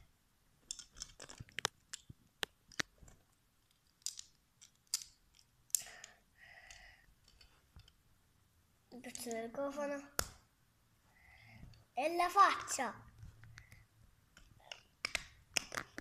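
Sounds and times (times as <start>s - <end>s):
plastic bricks clicking together: 0.6s - 3.0s, 3.6s - 8.0s, 14.4s - 16.0s.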